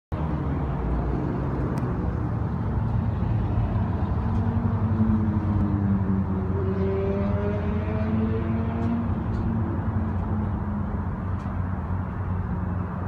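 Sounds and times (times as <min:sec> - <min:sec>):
diesel locomotive engines rumbling: 0:00.2 - 0:13.0.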